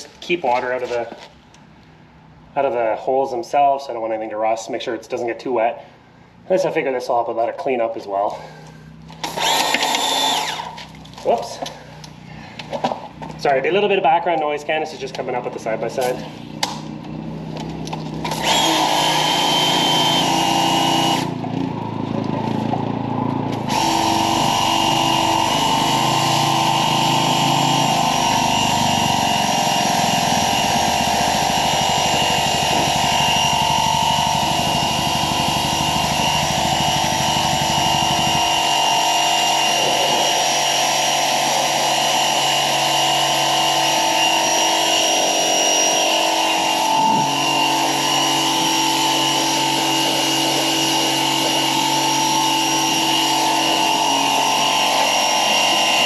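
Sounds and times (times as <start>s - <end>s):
pressure washer whine: 8.4s - 14.0s, 15.0s - 56.0s
vehicle engine running: 15.0s - 55.9s.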